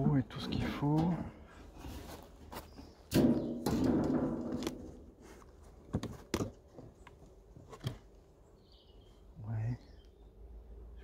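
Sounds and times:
metal roof clunking and rattling: 3.0 - 5.2
light knocks of cover board: 5.9 - 6.6.

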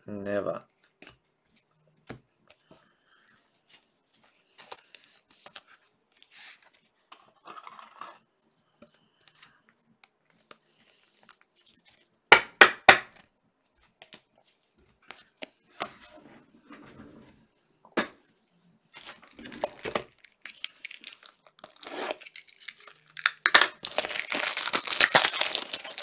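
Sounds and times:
trading cards rustling and clicking: 19.0 - 26.0.

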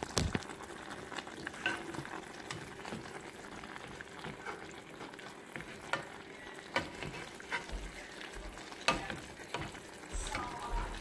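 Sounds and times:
sharp pops and crackles: 0.0 - 0.8
stew simmering and sizzling: 0.0 - 11.0.

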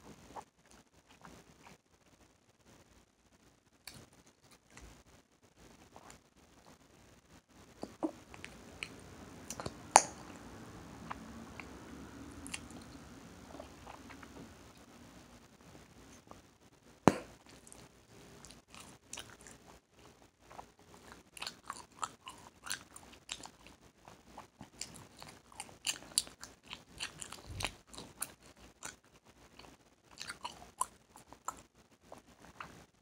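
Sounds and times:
gum cracking snaps: 7.8 - 10.3.

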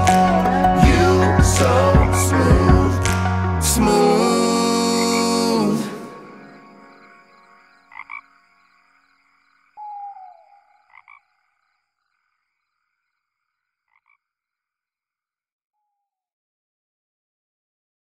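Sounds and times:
music: 0.0 - 8.1
frog croaking: 3.9 - 14.8.

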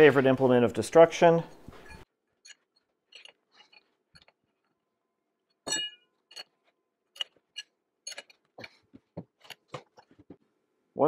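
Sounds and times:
wrench clinking on steel: 1.8 - 4.4, 5.6 - 8.7, 9.3 - 10.0.

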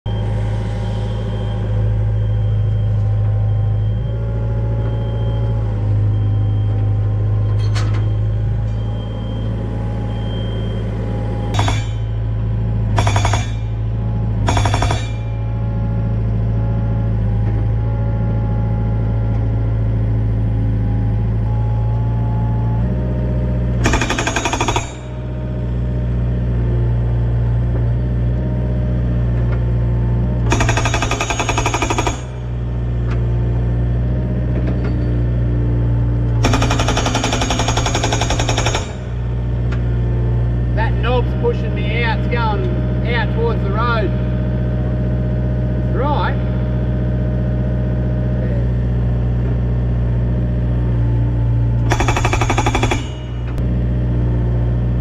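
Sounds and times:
excavator engine running: 0.1 - 55.0
hydraulic rock breaker hammering: 11.4 - 15.6, 23.8 - 25.4, 30.5 - 32.8, 36.4 - 39.8, 51.8 - 53.6.

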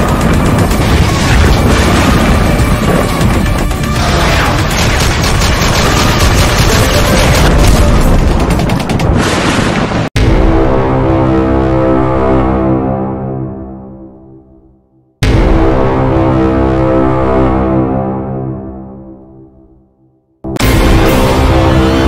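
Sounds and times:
cinematic intro music: 0.0 - 9.3, 10.1 - 22.0
gunfire sound effects: 4.0 - 10.1
deep booms: 15.2 - 16.9.

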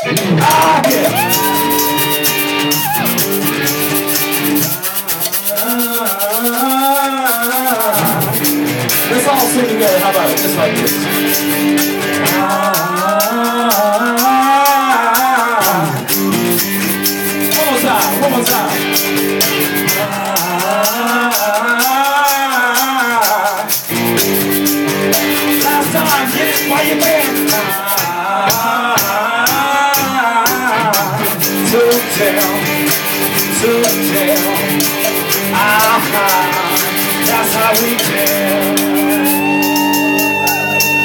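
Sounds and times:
fast hand percussion rattle: 0.0 - 41.0
guitars: 0.0 - 41.0.

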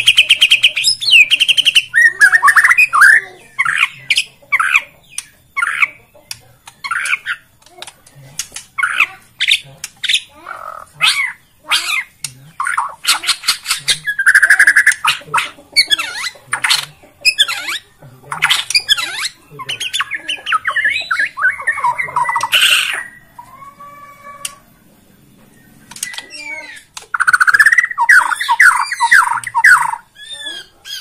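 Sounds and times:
songbird whistles squawks and trills: 0.0 - 6.0, 25.9 - 31.0.

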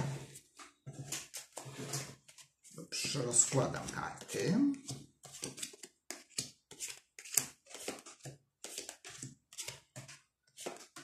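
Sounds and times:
cards snapping and sliding: 5.4 - 8.1.

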